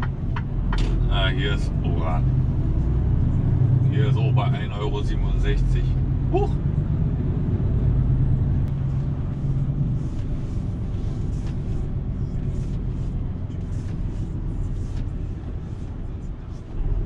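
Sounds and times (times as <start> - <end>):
lorry engine rumble in cab: 0.0 - 17.0.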